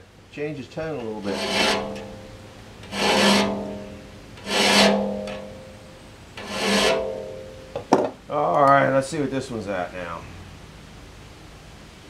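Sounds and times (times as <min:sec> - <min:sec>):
file stroking saw blade tooth: 0:01.1 - 0:05.8, 0:06.4 - 0:07.6
steel blade ringing tone: 0:01.3 - 0:07.8.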